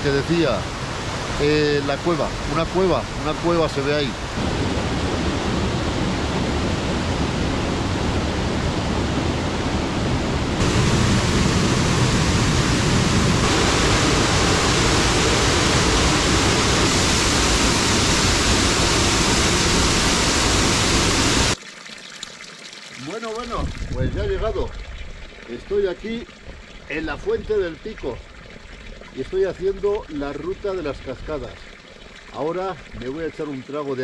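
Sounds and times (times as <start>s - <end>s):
stream and waterfall rushing: 0.0s - 21.6s.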